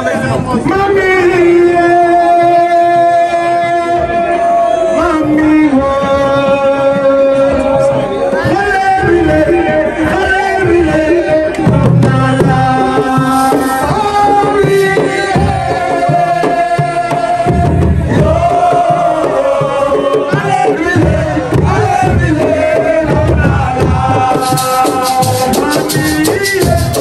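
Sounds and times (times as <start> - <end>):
person singing: 8.4 - 17.5, 18.2 - 27.0
hand drum strokes: 12.0 - 15.6, 24.2 - 27.0
shaker rattle: 13.3 - 13.8, 24.4 - 27.0.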